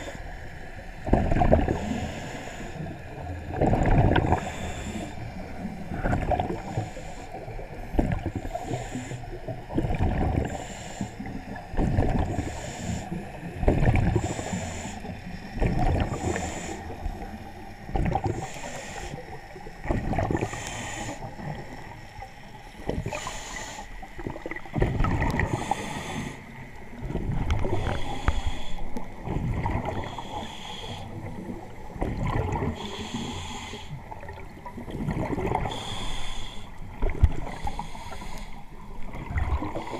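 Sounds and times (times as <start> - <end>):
scuba regulator inhale hiss: 1.7 - 3.0, 4.4 - 5.6, 8.4 - 9.4, 10.5 - 11.3, 12.4 - 13.2, 14.2 - 15.2, 16.1 - 17.0, 18.4 - 19.2, 20.4 - 21.3, 23.1 - 24.1, 25.4 - 26.6, 27.6 - 29.0, 30.0 - 31.4, 32.7 - 34.0, 35.6 - 36.8, 37.4 - 38.7.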